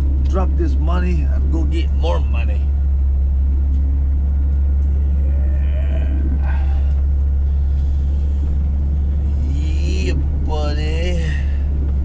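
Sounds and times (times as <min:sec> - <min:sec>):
diesel truck engine rumble: 0:00.0 - 0:12.0.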